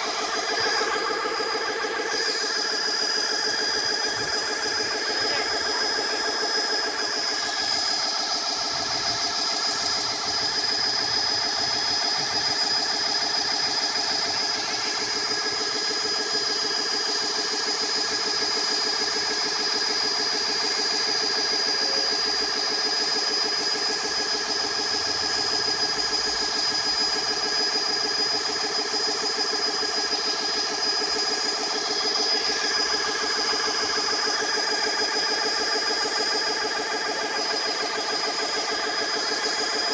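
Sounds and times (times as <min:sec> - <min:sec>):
air compressor chugging: 0:00.0 - 0:39.9.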